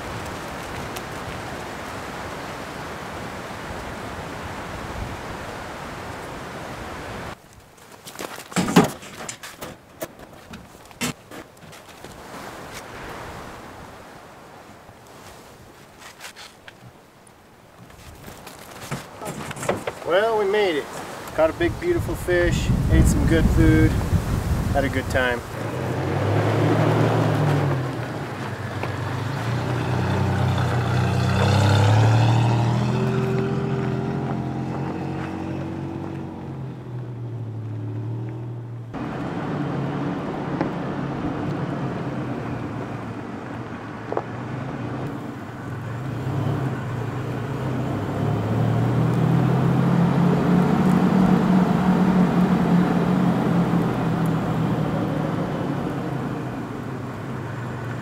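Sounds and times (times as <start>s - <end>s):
road noise on dirt: 0.0s - 58.0s
truck engine driving: 19.0s - 58.0s.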